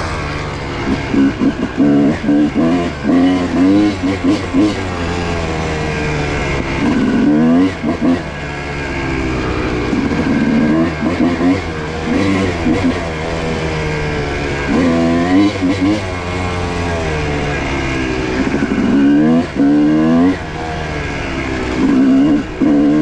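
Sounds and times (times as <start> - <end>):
dirt bike engine revving: 0.0 - 23.0.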